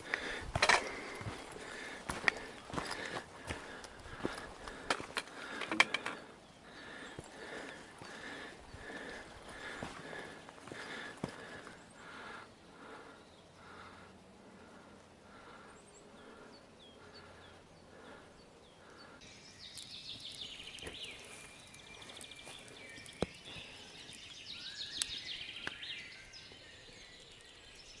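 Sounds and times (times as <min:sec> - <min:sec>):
campfire popping: 0:00.0 - 0:12.4, 0:19.7 - 0:28.0
songbirds singing: 0:00.0 - 0:28.0
faint high bird calls: 0:14.9 - 0:28.0.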